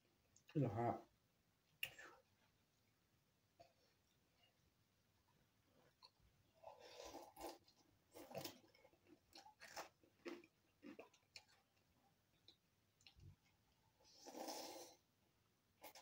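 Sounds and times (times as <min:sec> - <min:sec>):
person chewing noodles: 0:05.7 - 0:15.0.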